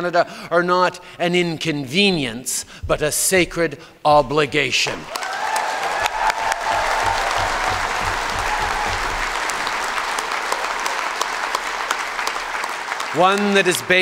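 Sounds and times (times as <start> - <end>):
audience applauding: 5.0 - 14.0.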